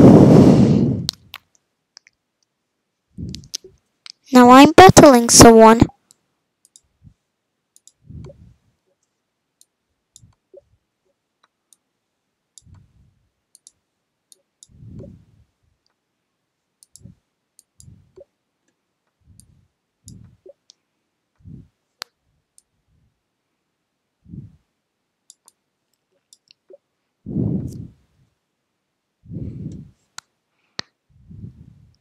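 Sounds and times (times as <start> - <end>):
computer mouse clicks: 6.1 - 6.9, 7.8 - 8.4, 13.5 - 15.2, 16.8 - 18.3, 25.3 - 26.7.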